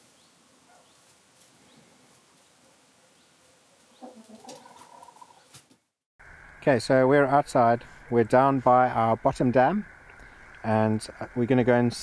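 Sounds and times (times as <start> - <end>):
hen clucking softly: 3.9 - 5.5.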